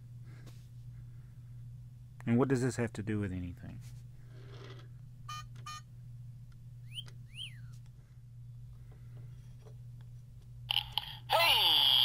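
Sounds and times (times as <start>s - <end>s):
steady low hum: 0.0s - 12.0s
high squeaky chirps: 6.8s - 7.8s.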